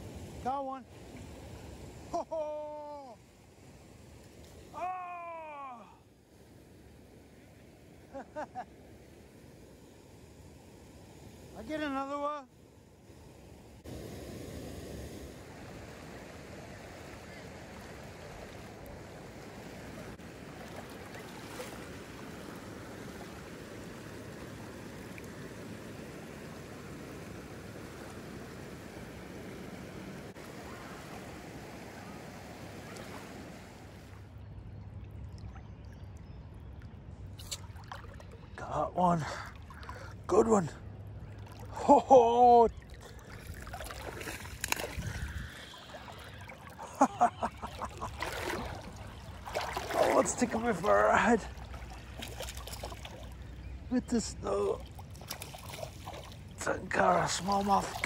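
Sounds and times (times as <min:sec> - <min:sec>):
river water sloshing and splashing: 0:00.0 - 0:02.2, 0:13.2 - 0:58.0
river water rushing over rocks: 0:45.8 - 0:53.4.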